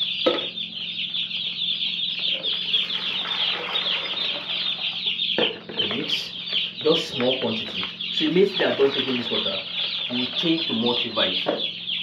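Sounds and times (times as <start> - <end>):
chicks peeping: 0.0 - 12.0
liquid poured into plastic jug: 2.6 - 4.7.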